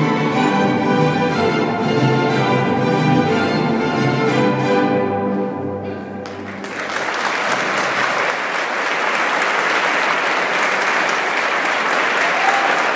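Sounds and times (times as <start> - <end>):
string ensemble chord: 0.0 - 6.7
audience applauding: 6.2 - 12.9.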